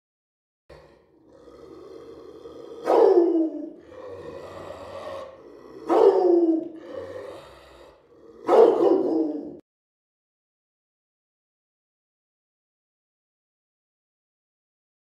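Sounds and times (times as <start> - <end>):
dog growling: 0.7 - 9.6
dog barking: 2.8 - 3.8, 5.8 - 6.9, 8.4 - 9.6.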